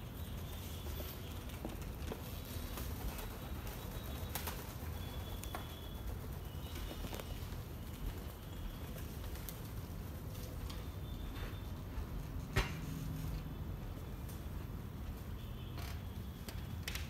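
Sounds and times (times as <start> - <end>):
pigeons chirping: 0.0 - 14.6
pigeon wing-flaps: 0.2 - 10.9.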